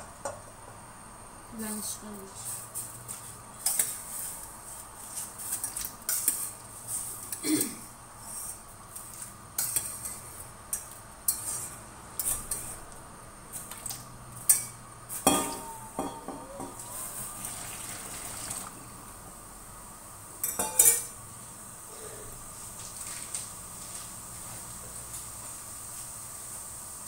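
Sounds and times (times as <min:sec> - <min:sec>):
utensils and dishes clinking: 0:13.8 - 0:16.9, 0:20.4 - 0:21.1.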